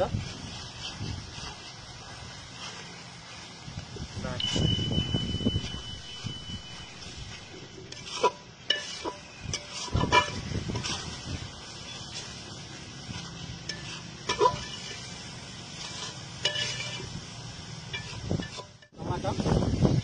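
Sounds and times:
frying sizzle: 0.0 - 20.0
metal spatula scraping a pan: 4.5 - 17.3, 17.9 - 18.9.

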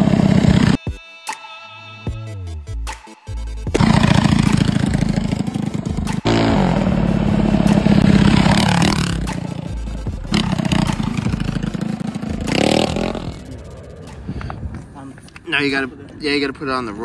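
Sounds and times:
mini bike engine revving: 0.0 - 0.8, 3.8 - 9.6, 10.3 - 13.5.

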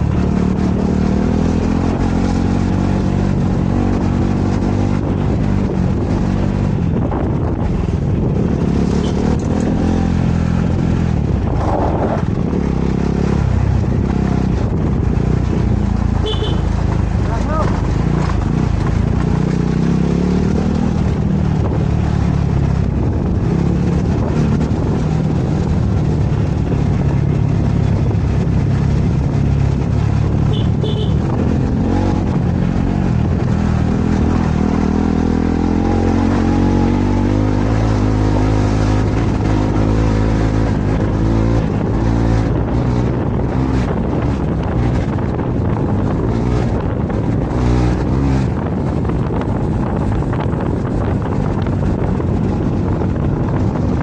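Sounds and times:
motorcycle engine running: 0.0 - 54.0
wind buffeting microphone: 3.2 - 30.5, 31.1 - 54.0.

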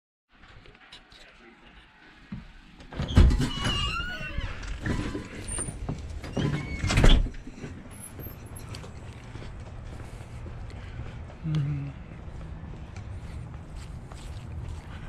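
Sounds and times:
door squeaks: 2.9 - 8.4.

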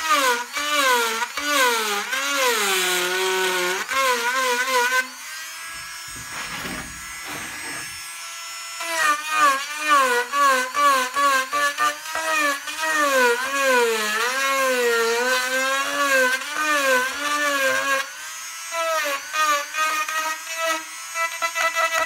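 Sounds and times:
rotary tool carving wood: 0.0 - 22.0.

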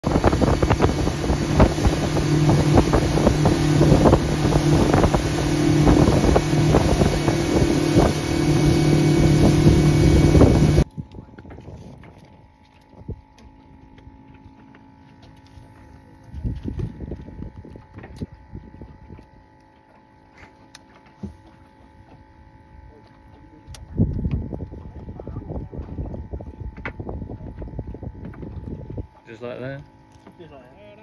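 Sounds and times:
wind buffeting microphone: 0.0 - 13.5, 16.2 - 19.5, 23.7 - 29.4
outboard engine droning: 0.0 - 31.0.

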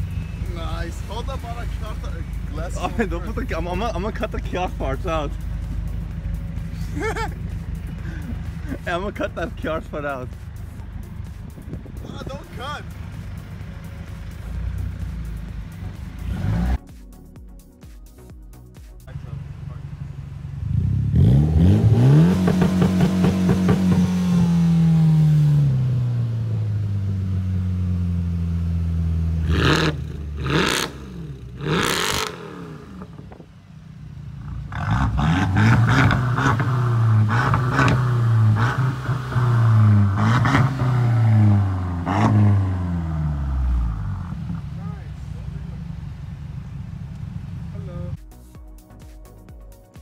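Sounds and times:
car engine revving: 0.0 - 16.9, 19.1 - 48.2
exhaust cracks: 0.0 - 16.9, 19.0 - 48.2
engine short revs: 14.0 - 16.8, 20.5 - 26.3, 29.2 - 33.4, 34.4 - 44.8.

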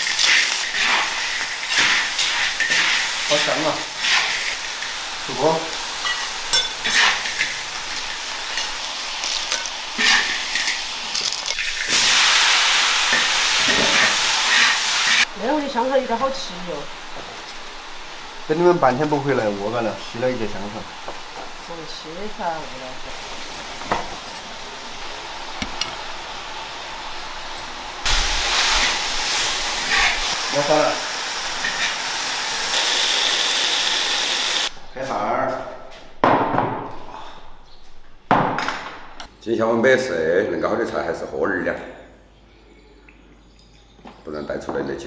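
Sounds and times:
metal spatula scraping a wok: 0.0 - 5.0, 6.0 - 10.8, 28.6 - 30.4, 31.6 - 32.1
clams sizzling in a wok: 0.0 - 34.7
loud steady hiss: 0.0 - 34.8.

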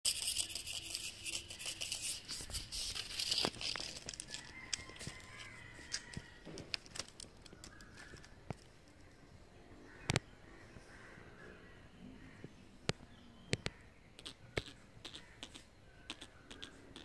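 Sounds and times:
cat claws scratching bark: 0.1 - 8.7, 14.2 - 17.0.

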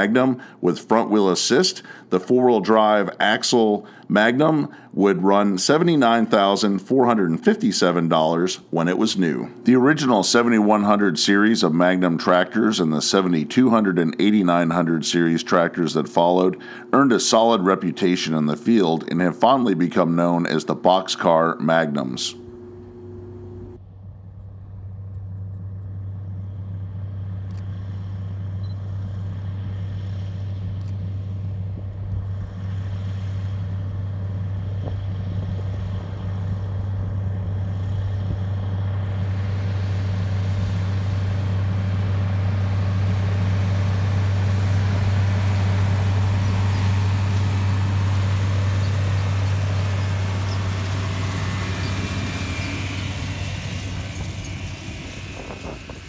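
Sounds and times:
tractor diesel engine drone: 0.0 - 56.0
planter rushing noise: 31.8 - 56.0.

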